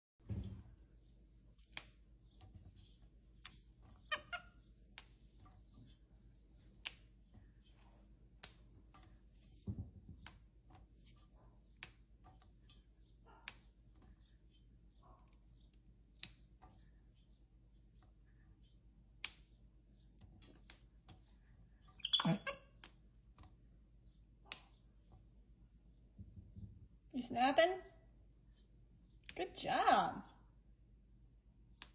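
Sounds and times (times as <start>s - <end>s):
green beans snapping: 1.6s - 2.1s, 3.3s - 4.1s, 6.6s - 9.2s, 11.6s - 12.2s, 15.3s - 16.6s, 19.1s - 19.6s, 20.4s - 21.1s, 24.5s - 24.8s, 31.7s - 31.9s
monkey squeaky call: 22.0s - 22.7s.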